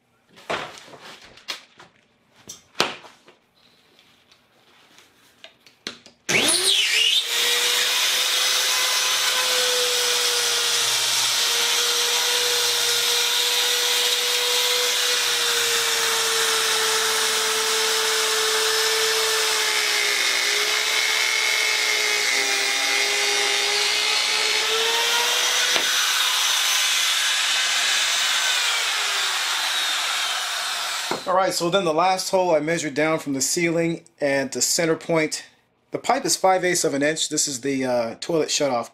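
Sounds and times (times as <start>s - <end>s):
rotary saw whining: 6.3s - 31.3s.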